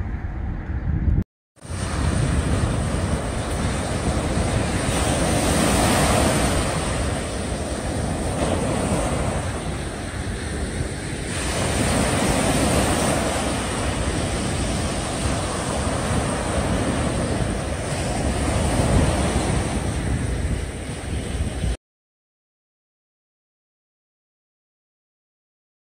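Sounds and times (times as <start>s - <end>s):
wind buffeting microphone: 0.0s - 21.8s
waves breaking on beach: 1.6s - 21.8s.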